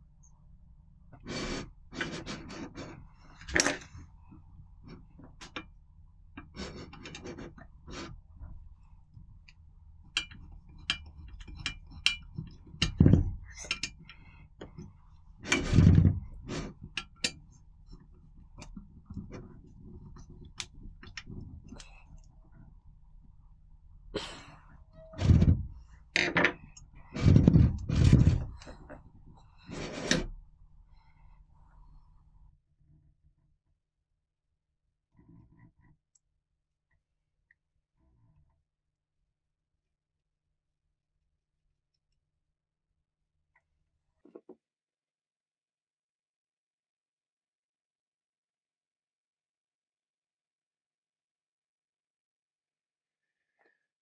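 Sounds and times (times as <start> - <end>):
metal parts clicking and tapping: 10.1 - 14.8.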